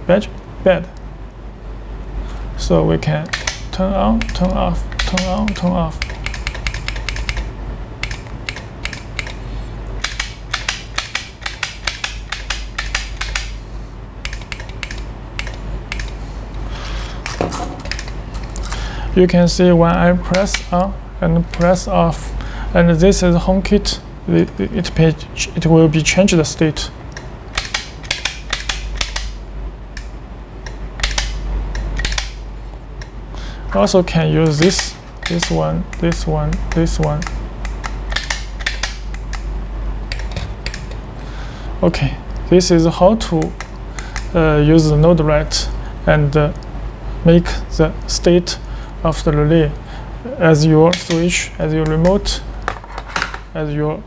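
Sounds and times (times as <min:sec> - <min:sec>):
light switches clicking: 0:03.2 - 0:09.4, 0:10.0 - 0:13.6, 0:14.2 - 0:16.2, 0:20.3 - 0:20.8, 0:27.1 - 0:29.4, 0:30.0 - 0:32.4, 0:34.4 - 0:39.5, 0:50.9 - 0:52.2.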